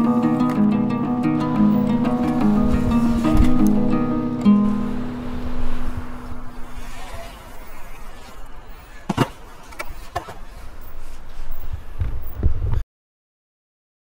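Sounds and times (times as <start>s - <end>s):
inline skate wheels rolling on concrete: 1.6s - 12.6s
skates clacking: 6.8s - 11.2s.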